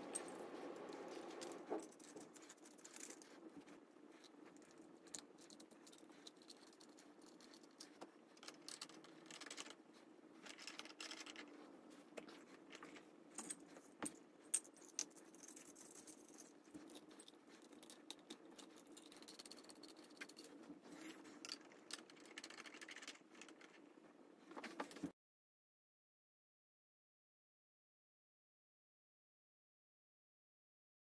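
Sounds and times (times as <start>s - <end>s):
small metal clicks and rattles: 0.0s - 3.4s, 4.1s - 9.8s, 10.4s - 11.6s, 12.7s - 23.9s
faint room hum: 0.0s - 25.1s.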